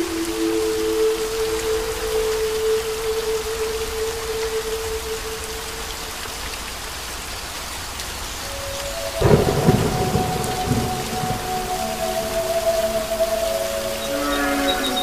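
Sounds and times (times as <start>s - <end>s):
heavy rain on pavement and roofs: 0.0s - 15.0s
loud thunder rumble: 9.2s - 13.2s.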